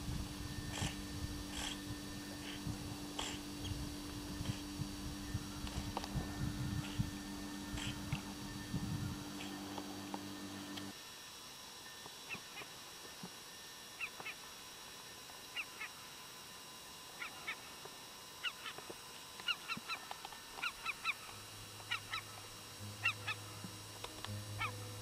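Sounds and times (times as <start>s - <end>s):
low steady hum: 0.0s - 25.0s
geese honking: 23.0s - 23.6s, 24.5s - 25.0s.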